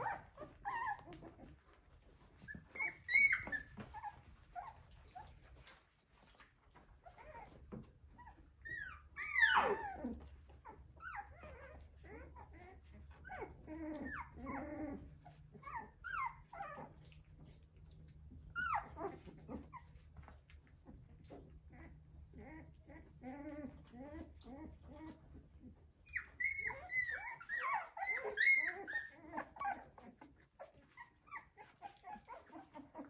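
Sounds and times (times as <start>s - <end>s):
puppies whimpering and squeaking: 0.0s - 33.0s
puppy high yelps: 2.4s - 5.2s, 8.2s - 10.2s, 26.1s - 30.2s.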